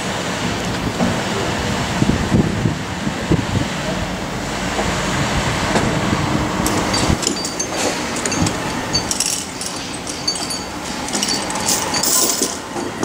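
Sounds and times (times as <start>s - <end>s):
building site background noise: 0.0s - 13.0s
high metallic clinks: 6.6s - 12.8s.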